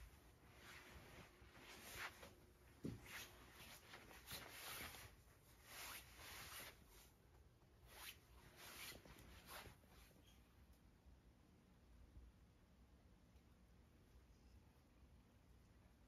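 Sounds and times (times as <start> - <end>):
soft rustling swishes: 0.0 - 10.4.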